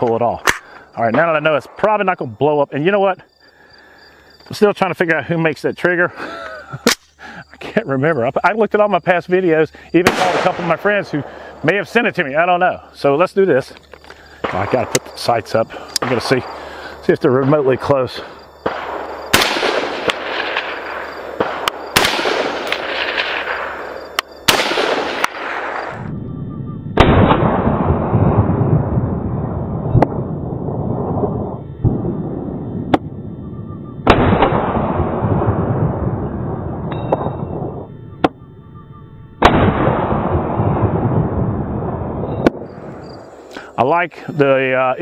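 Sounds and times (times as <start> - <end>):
fainter sharp cracks: 0.0 - 2.0, 6.8 - 7.2, 18.6 - 26.1
rifle shots echoing: 10.0 - 12.0, 16.0 - 16.6, 18.6 - 26.1, 27.0 - 28.6, 34.0 - 37.7, 39.4 - 43.0.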